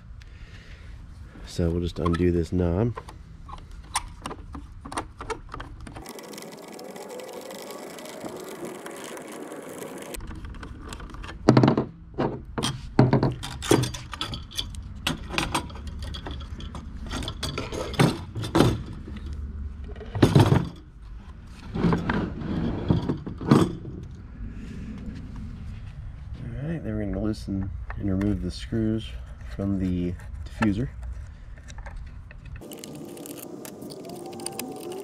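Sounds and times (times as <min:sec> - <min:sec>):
metal clinks and scrapes: 0:12.6 - 0:18.9.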